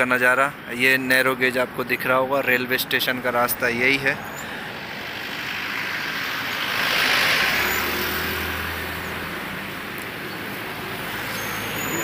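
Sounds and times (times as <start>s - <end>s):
vehicle engine hum: 0.4s - 12.0s
car passing: 3.6s - 12.0s.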